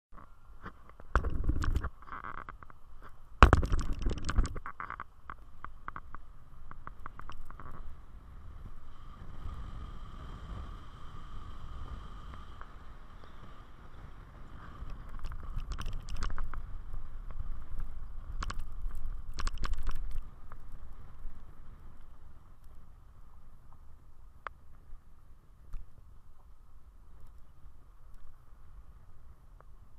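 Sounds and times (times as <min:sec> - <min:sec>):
faint steady whine: 0:00.1 - 0:29.9
road rumble: 0:00.1 - 0:29.9
sharp knocks and rattles: 0:03.4 - 0:05.0.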